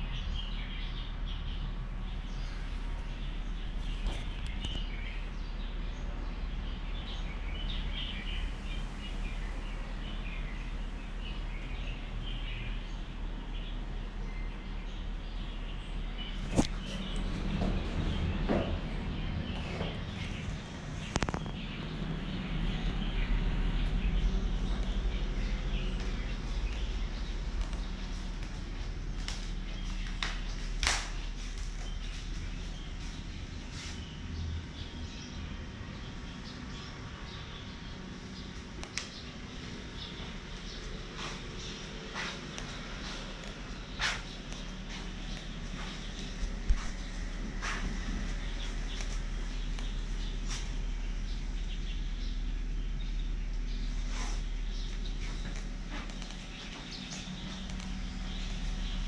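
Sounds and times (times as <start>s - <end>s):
birds chirping: 0.0s - 59.0s
low background noise: 0.0s - 59.0s
footsteps on wooden floor: 16.8s - 20.4s, 41.2s - 49.3s, 54.9s - 58.8s.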